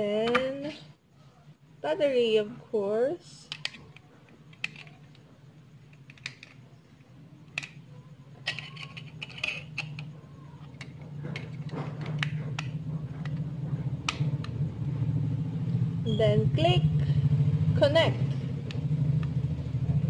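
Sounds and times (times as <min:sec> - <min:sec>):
small plastic clicks and rattles: 0:03.5 - 0:05.2, 0:05.9 - 0:06.7, 0:08.4 - 0:13.4.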